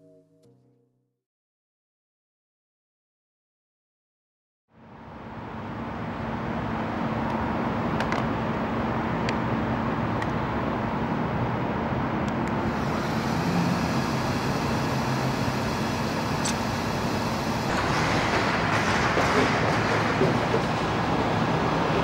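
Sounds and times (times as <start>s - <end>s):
road traffic noise: 4.8s - 22.0s.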